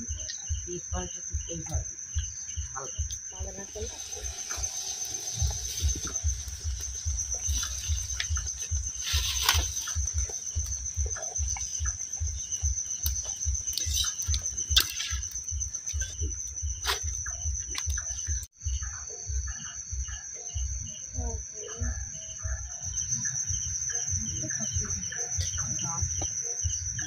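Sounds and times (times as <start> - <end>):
low thumps: 0.0 - 18.5
insects trilling: 0.0 - 27.0.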